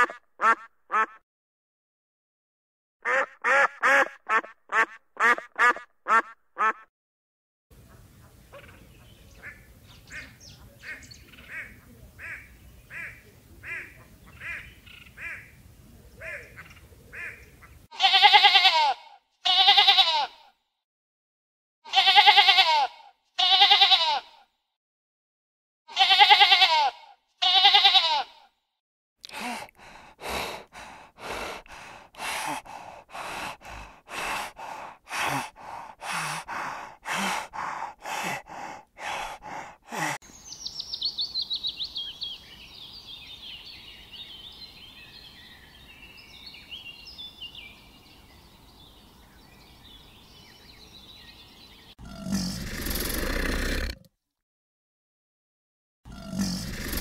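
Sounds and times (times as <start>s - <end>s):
sheep bleating: 17.9s - 20.5s, 21.9s - 24.4s, 25.9s - 28.5s.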